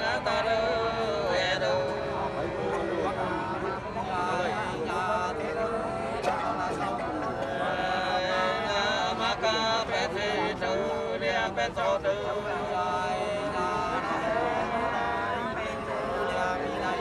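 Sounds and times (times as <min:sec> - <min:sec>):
unaccompanied folk singing: 0:00.0 - 0:17.0.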